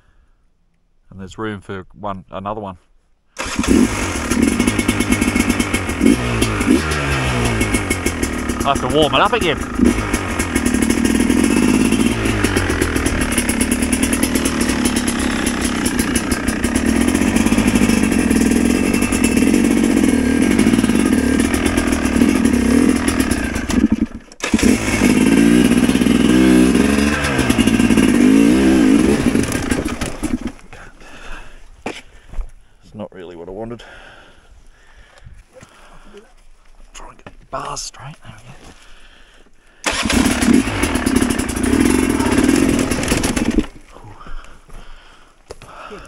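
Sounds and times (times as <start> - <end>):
dirt bike engine revving: 3.4 - 30.6, 39.8 - 43.8.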